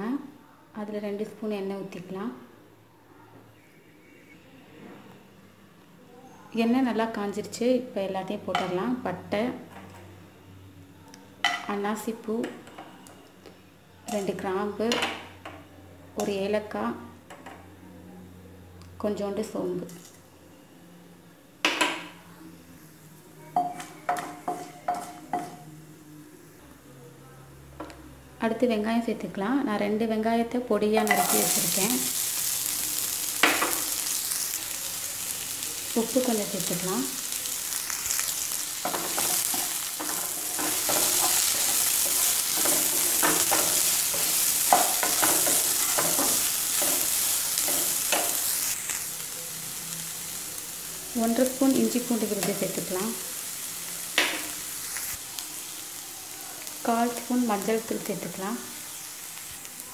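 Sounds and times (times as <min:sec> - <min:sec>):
onions sizzling in hot oil: 0:14.1 - 0:15.3, 0:22.8 - 0:26.6, 0:30.9 - 0:59.9
metal spoon clinking on pan: 0:23.6 - 0:25.7, 0:31.0 - 0:31.5, 0:38.8 - 0:48.4.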